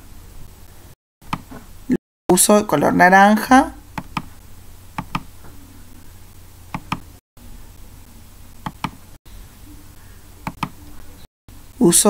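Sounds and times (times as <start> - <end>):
faint low hum: 2.8 - 12.0
computer mouse button clicks: 6.8 - 7.0, 10.5 - 10.8.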